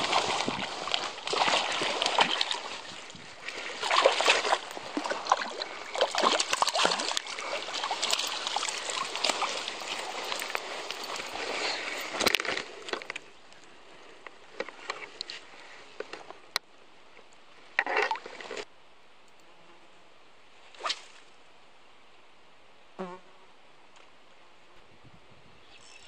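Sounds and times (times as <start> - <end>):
water sloshing and splashing: 0.0 - 13.2.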